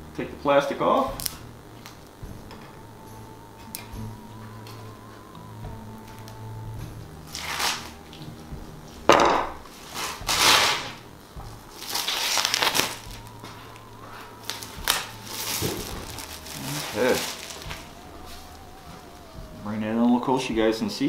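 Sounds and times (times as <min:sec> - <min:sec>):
plastic film peeling crackle: 0:01.1 - 0:02.0, 0:07.2 - 0:08.3, 0:09.8 - 0:11.0, 0:11.7 - 0:19.4.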